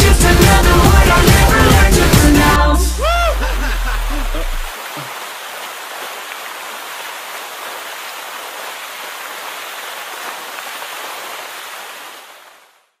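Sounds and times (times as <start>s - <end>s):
water fountain splashing: 3.0s - 12.8s.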